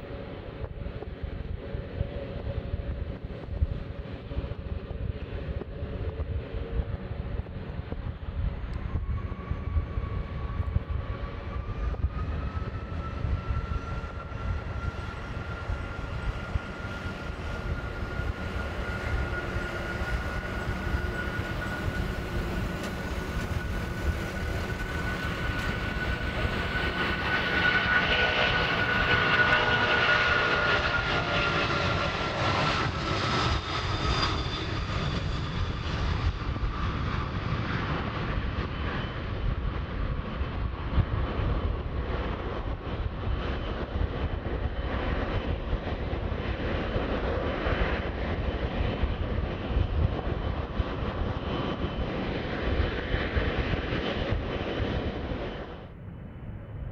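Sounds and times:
high jet engine whine: 0.0s - 56.9s
jet engine rumble: 0.0s - 56.9s.

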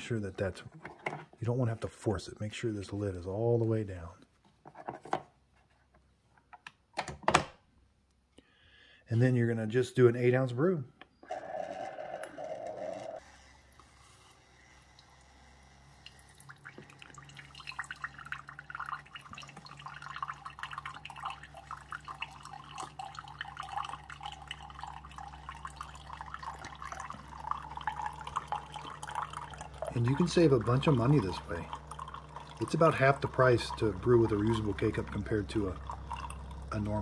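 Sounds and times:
coffee maker humming: 11.0s - 37.0s
coffee streaming into mug: 11.2s - 37.0s.

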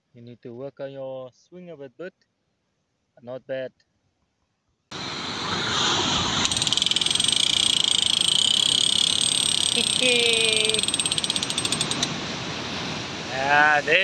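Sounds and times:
fishing reel drag buzzing: 6.4s - 12.1s.

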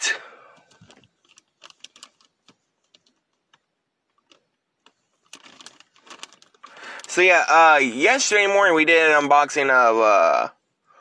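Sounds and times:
plastic bag crinkling: 0.6s - 3.3s, 4.2s - 7.3s.

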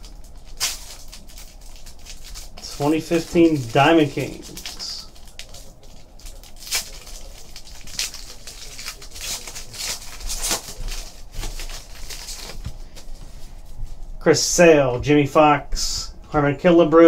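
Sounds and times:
foil wrapper tearing and crinkling: 0.0s - 13.1s.

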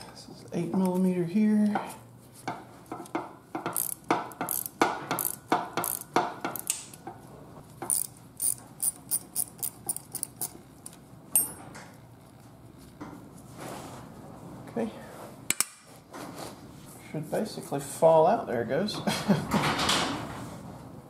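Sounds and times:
socket ratchet clicking: 3.7s - 7.0s, 7.8s - 10.6s.

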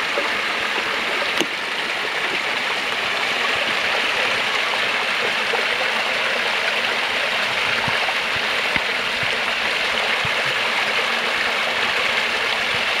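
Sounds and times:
brook pouring over rocks: 0.0s - 13.0s.

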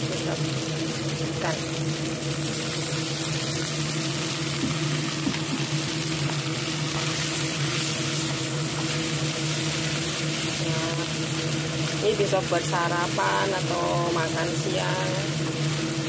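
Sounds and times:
low mechanical hum: 0.0s - 16.0s
noodles sizzling in frying pan: 0.0s - 16.0s.

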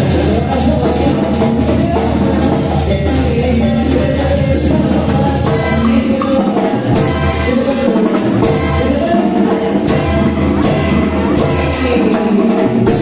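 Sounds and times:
heavy bass line: 0.0s - 6.2s, 6.8s - 12.2s
live band music: 0.0s - 13.0s.

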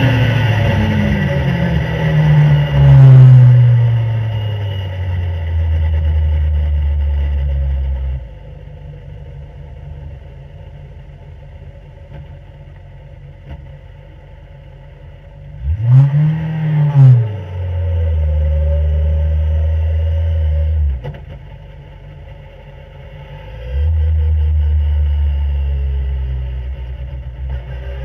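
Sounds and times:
racing car engine revving: 0.0s - 8.3s, 15.4s - 21.7s.

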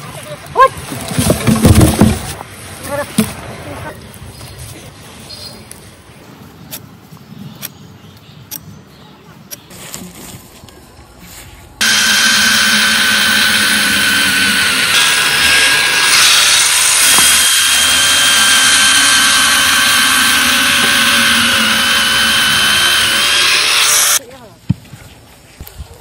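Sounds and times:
factory machinery whirring: 11.8s - 24.2s
high machine whine: 11.8s - 24.2s.

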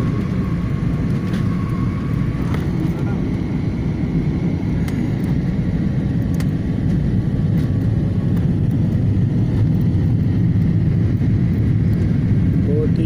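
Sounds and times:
airliner cabin rumble: 0.0s - 13.0s.

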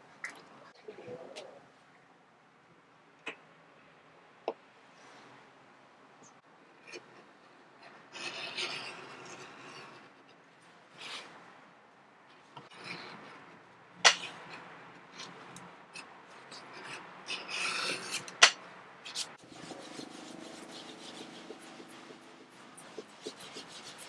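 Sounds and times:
knife scraping leather: 16.5s - 24.0s.

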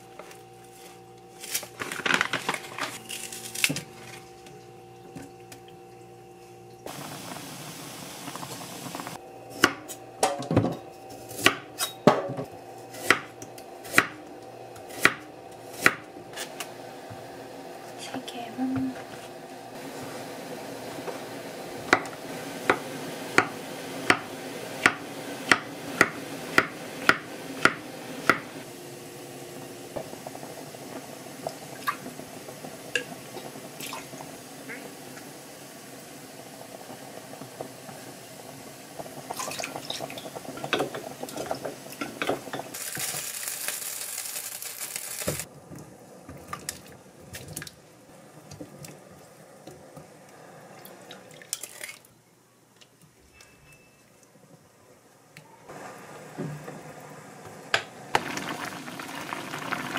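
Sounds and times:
running water: 39.1s - 42.1s.

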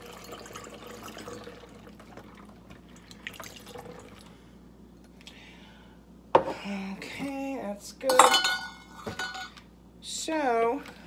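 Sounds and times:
liquid trickling through funnel: 0.0s - 4.3s.

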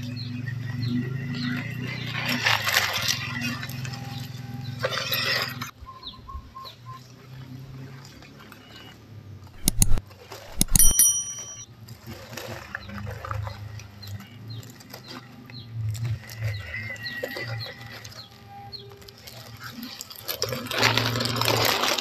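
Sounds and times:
sharp button clicks: 9.6s - 11.6s
short bell-like chime: 9.6s - 11.6s.

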